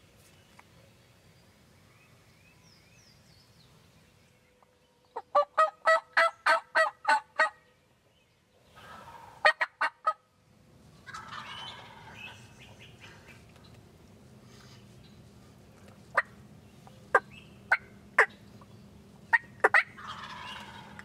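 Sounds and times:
turkey rattling gobble: 0:05.2 - 0:07.6, 0:08.8 - 0:10.2, 0:11.0 - 0:12.9, 0:19.3 - 0:21.0
turkey yelps: 0:05.2 - 0:07.6, 0:08.8 - 0:10.2, 0:11.0 - 0:13.0, 0:19.3 - 0:21.0.

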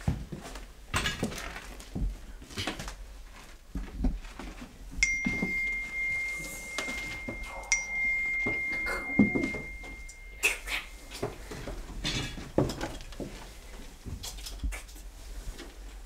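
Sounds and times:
steady high-pitched tone: 0:05.0 - 0:11.3.

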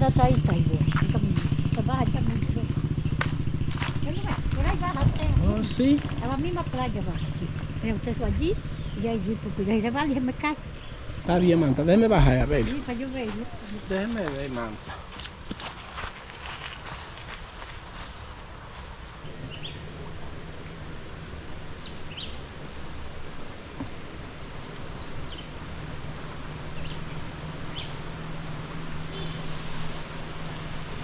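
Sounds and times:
low steady hum: 0:00.0 - 0:15.8, 0:16.4 - 0:31.0
bird chirps: 0:02.7 - 0:09.6, 0:19.2 - 0:20.3, 0:26.5 - 0:30.4
river flowing: 0:08.8 - 0:31.0.

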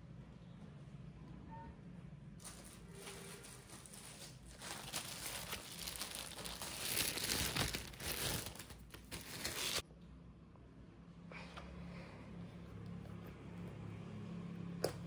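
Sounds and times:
plastic bag crinkling: 0:02.4 - 0:09.8.

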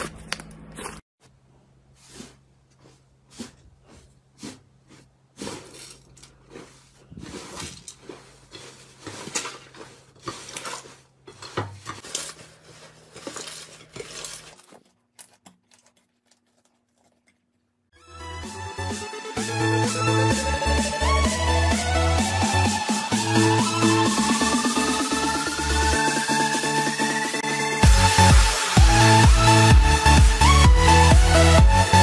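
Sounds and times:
slime crackling and squishing: 0:02.1 - 0:17.6.

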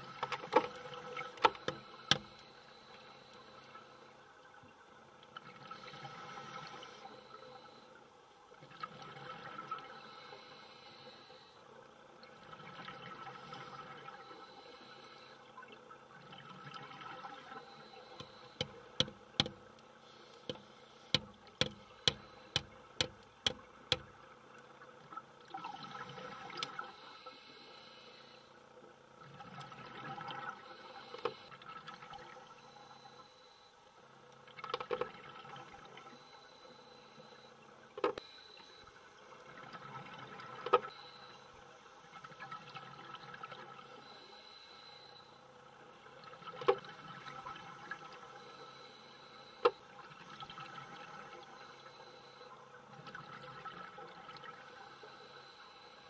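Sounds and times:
hammer tapping nail underwater: 0:18.2 - 0:19.6, 0:20.5 - 0:24.1.

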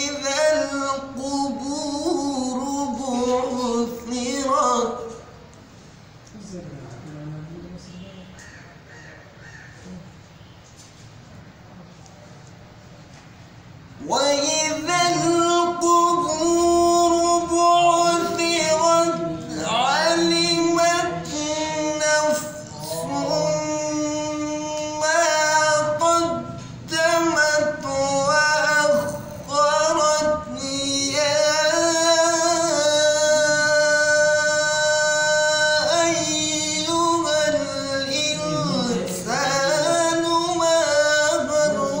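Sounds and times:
man chanting melodically: 0:00.0 - 0:05.5, 0:14.0 - 0:42.0.

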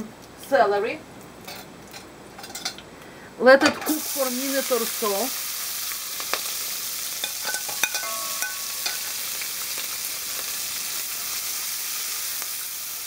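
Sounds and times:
vegetables sizzling in oil: 0:03.8 - 0:13.0.

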